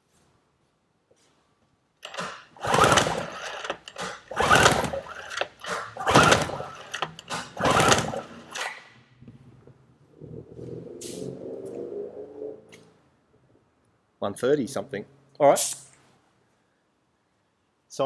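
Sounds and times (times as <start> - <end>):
outboard motor pull-starter whirring: 2.0 - 8.8.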